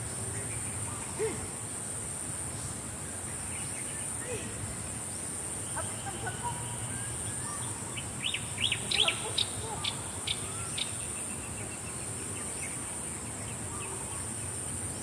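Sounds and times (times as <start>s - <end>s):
bird chirping: 3.3s - 14.3s.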